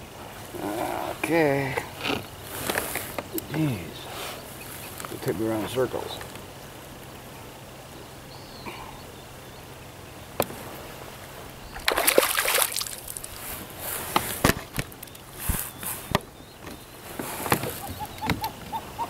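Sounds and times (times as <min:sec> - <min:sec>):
fish splashing at the surface: 0:11.7 - 0:13.6.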